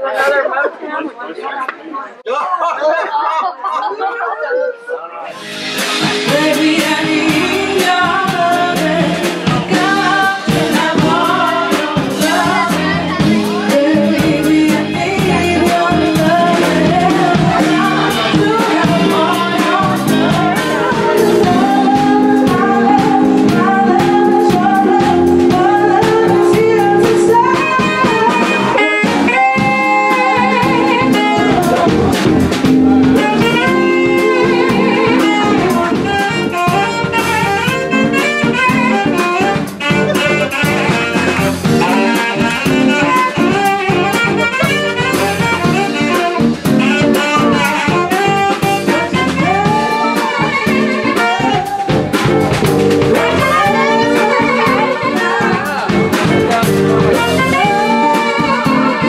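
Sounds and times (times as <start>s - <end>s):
live band playing jazzy dance music: 5.3s - 59.0s.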